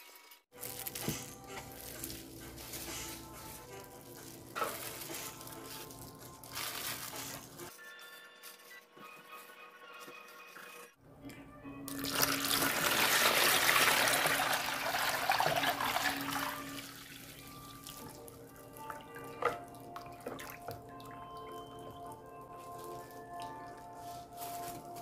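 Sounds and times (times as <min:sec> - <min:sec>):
liquid pouring into plastic bowl: 0:11.9 - 0:18.0
ladle stirring liquid: 0:11.9 - 0:24.2.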